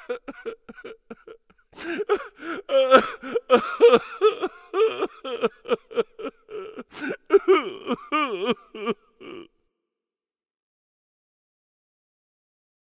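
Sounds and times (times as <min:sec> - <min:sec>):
comic crying voice sobbing: 0:00.0 - 0:09.5.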